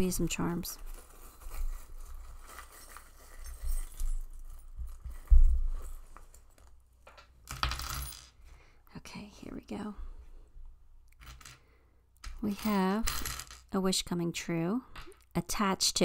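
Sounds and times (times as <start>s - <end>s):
metal charms jingling: 1.6s - 5.3s.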